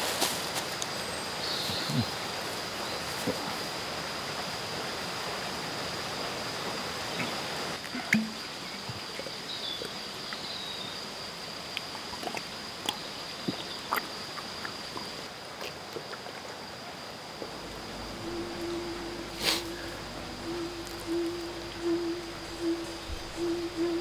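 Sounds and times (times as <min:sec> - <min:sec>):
steady hiss: 0:00.0 - 0:08.9, 0:16.9 - 0:24.0
low pulsing musical note: 0:17.5 - 0:24.0
faint chirp: 0:17.6 - 0:24.0
high-pitched thin tone: 0:17.7 - 0:24.0.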